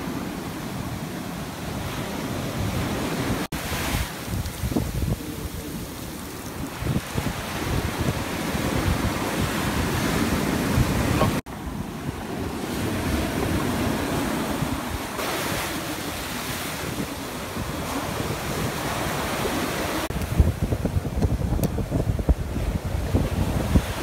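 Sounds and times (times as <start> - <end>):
ocean surf breaking: 0.0 - 24.0
wind buffeting microphone: 1.7 - 24.0.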